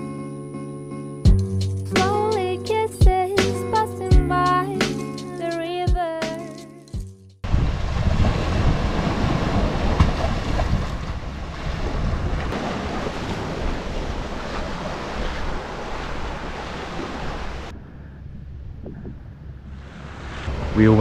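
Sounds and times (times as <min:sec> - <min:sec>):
sea waves washing onto shore: 0:07.4 - 0:17.7, 0:19.8 - 0:21.0
wind buffeting microphone: 0:07.4 - 0:21.0.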